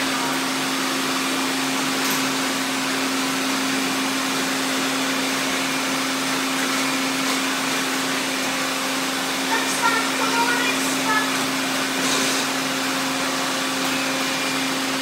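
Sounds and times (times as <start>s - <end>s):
robot vacuums whirring: 3.7s - 15.0s.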